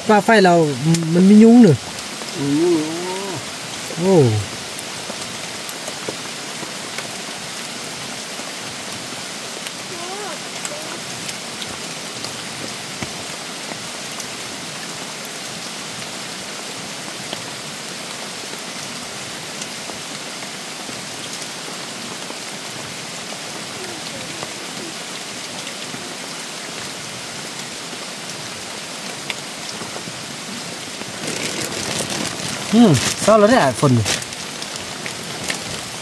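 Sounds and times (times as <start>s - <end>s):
rain on foliage: 0.0s - 36.0s
raindrop ticks: 0.2s - 7.1s, 9.6s - 14.3s, 31.0s - 36.0s.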